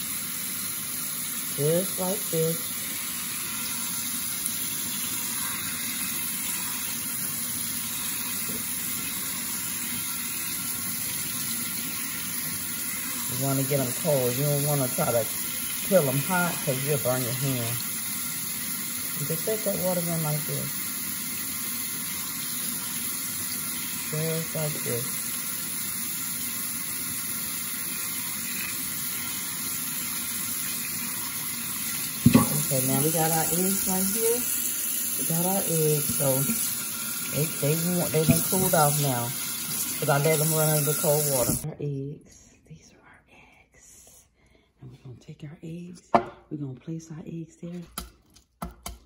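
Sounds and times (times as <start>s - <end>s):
tap water splashing into sink: 2.8s - 41.6s.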